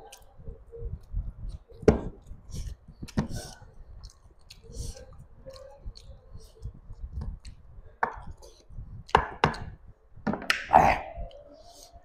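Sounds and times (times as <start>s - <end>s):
person chewing food: 1.0s - 9.8s.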